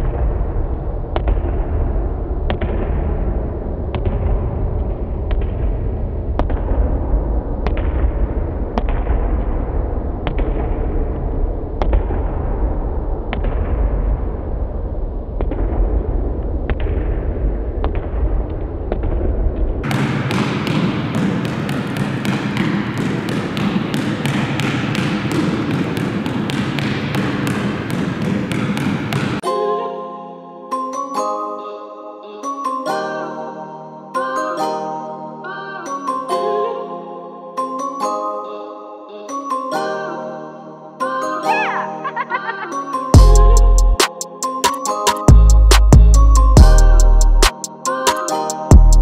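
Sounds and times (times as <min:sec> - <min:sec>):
low rumble: 0:00.0 - 0:19.8
basketball bouncing on gym floor: 0:19.8 - 0:29.4.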